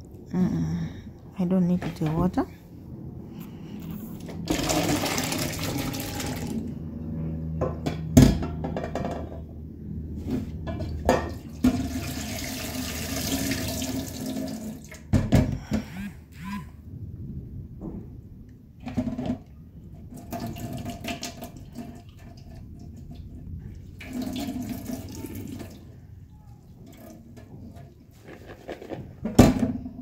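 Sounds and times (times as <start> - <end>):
water pouring into a sink: 4.4 - 6.6, 11.5 - 15.1, 20.1 - 23.3, 23.9 - 25.9.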